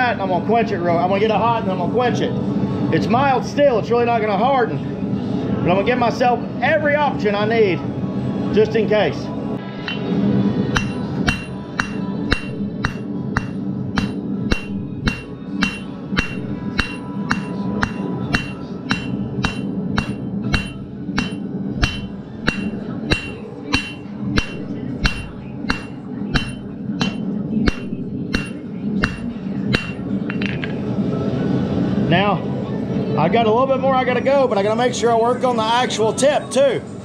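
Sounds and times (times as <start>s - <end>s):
hammer striking metal on anvil: 9.8s - 10.1s, 10.7s - 30.8s.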